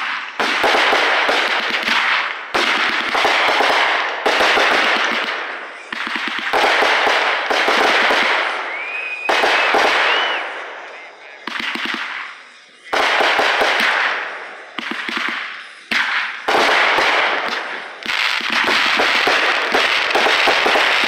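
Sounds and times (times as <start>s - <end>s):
fireworks bursting and crackling: 0.0s - 21.0s
firework whistle: 5.5s - 21.0s.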